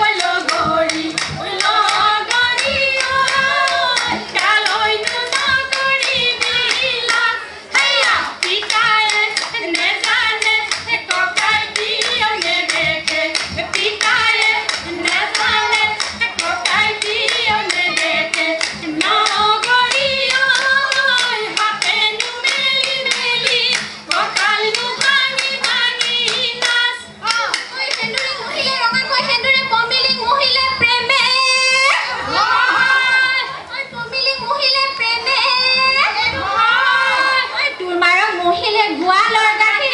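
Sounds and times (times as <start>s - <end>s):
fast hand clapping: 0.0s - 29.5s
women singing together: 0.0s - 39.9s.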